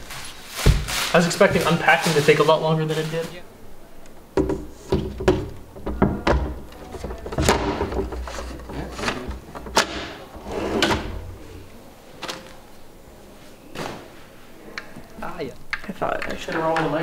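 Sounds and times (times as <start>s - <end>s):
drawer knocking and clicking: 4.4s - 11.4s
drawer slides rattling: 4.9s - 11.5s.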